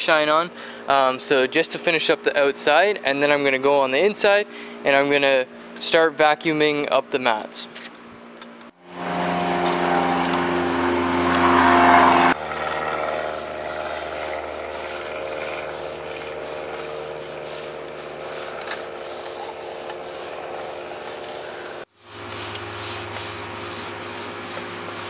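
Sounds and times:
steady hum: 8.2 - 25.0
foam pad rubbing tire: 8.9 - 25.0.

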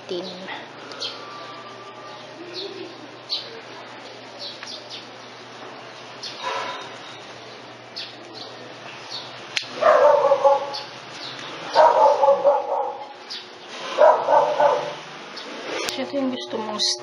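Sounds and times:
dog barking: 9.7 - 10.9, 11.7 - 13.2, 13.9 - 15.0.

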